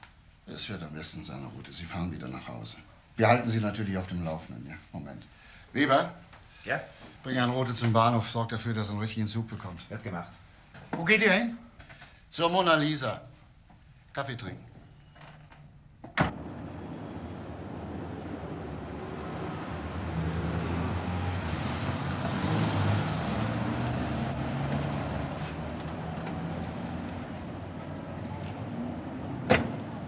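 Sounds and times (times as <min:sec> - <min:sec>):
car door shutting: 0:29.4 - 0:30.0.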